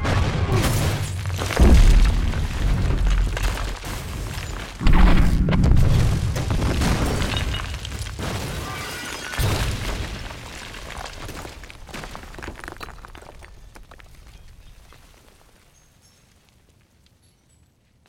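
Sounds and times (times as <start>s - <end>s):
building explosions: 0.0s - 8.8s
debris falling and clattering: 0.0s - 17.7s
deep rumbling: 1.3s - 8.1s.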